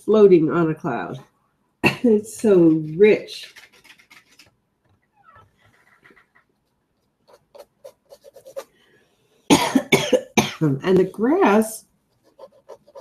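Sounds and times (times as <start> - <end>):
small dog panting: 5.5 - 6.5
dog coughing: 9.5 - 10.6.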